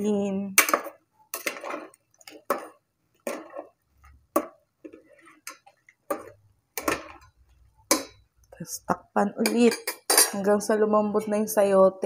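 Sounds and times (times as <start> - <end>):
metal ladle clinking against pot: 5.4 - 8.3, 9.4 - 10.5.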